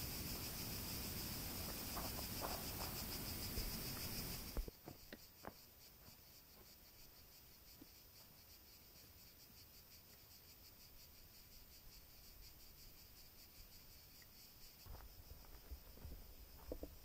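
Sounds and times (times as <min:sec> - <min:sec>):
cicadas buzzing: 0:00.0 - 0:17.0.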